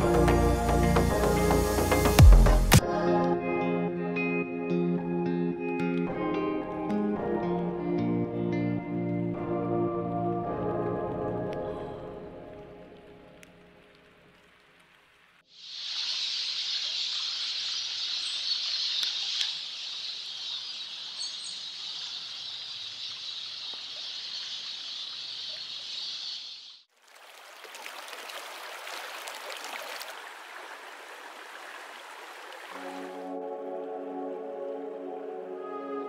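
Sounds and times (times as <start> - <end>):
running water hiss: 0.0 - 2.8, 12.5 - 33.4
stream rushing over stones: 26.9 - 33.3.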